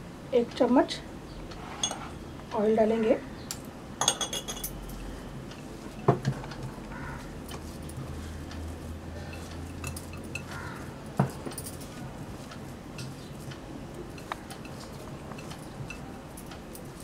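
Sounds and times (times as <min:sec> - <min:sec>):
bangles clinking on glass: 0:04.0 - 0:04.9, 0:09.3 - 0:10.5.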